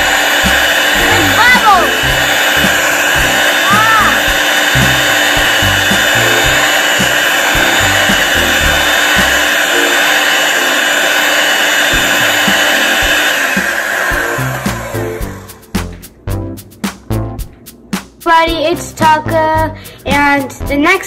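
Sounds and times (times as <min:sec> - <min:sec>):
background music with bass line: 0:00.0 - 0:09.4, 0:14.2 - 0:21.0
electric hand mixer whisking: 0:00.0 - 0:16.2.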